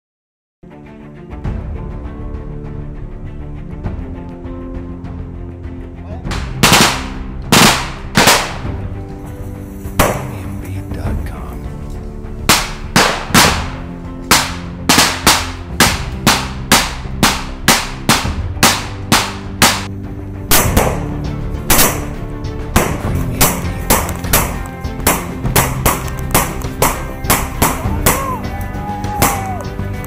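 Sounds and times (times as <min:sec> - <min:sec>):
music with held low notes: 0:00.8 - 0:30.0
rifle shots: 0:06.3 - 0:08.7, 0:12.5 - 0:19.9, 0:20.5 - 0:21.1, 0:21.7 - 0:22.2, 0:22.8 - 0:27.8.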